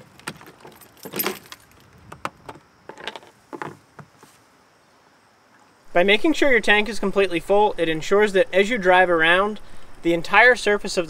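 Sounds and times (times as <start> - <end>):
keys jangling in lock: 0.3 - 1.8.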